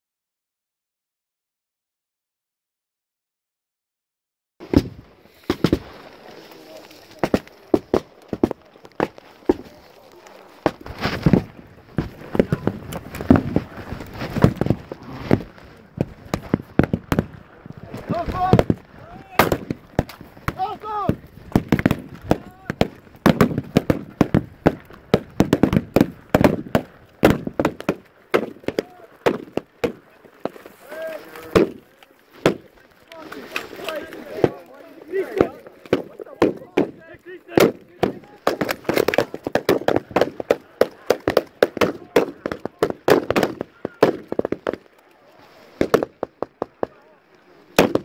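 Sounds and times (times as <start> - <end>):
blank rifle fire: 47.8 - 48.0.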